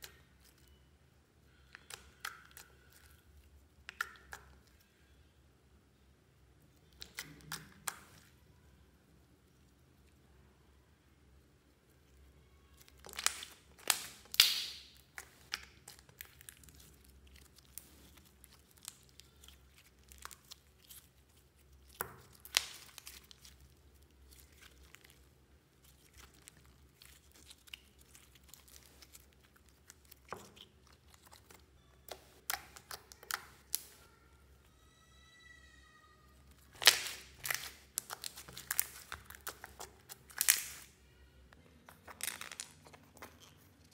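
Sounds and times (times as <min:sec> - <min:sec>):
slime crackling and popping: 0:06.8 - 0:08.4, 0:12.5 - 0:34.1, 0:36.4 - 0:41.0, 0:41.8 - 0:43.9.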